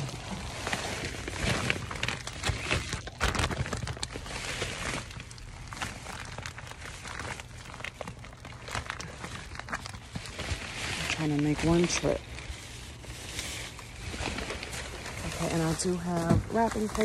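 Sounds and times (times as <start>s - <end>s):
shopping bags rustling: 0.0s - 17.0s.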